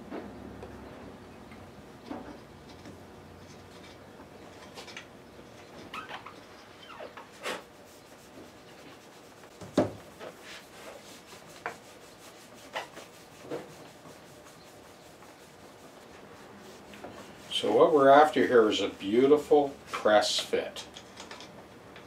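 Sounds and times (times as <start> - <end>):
reamer scraping wood: 7.2 - 20.6
knocks on wood: 9.6 - 10.0.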